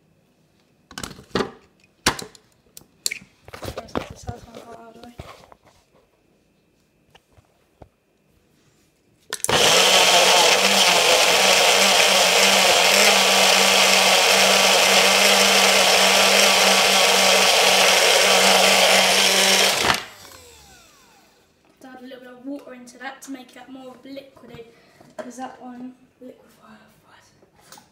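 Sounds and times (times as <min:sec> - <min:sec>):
blender motor running: 0:09.4 - 0:21.5.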